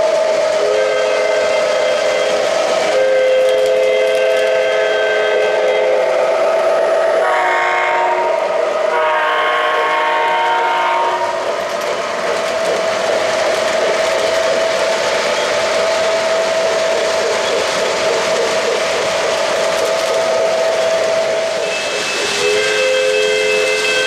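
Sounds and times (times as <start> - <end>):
model train diesel horn blasts: 0.6 - 11.4, 21.6 - 24.0.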